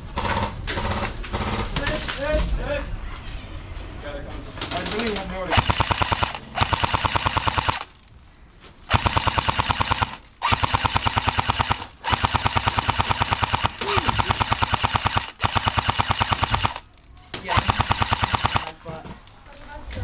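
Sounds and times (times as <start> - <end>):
airsoft machine gun bursts: 5.5 - 8.0, 8.9 - 16.9, 17.5 - 18.8.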